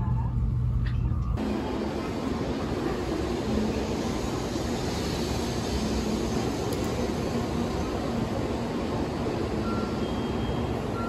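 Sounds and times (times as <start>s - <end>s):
low rumble inside train carriage: 0.0s - 11.0s
train whooshing hum: 0.0s - 11.0s.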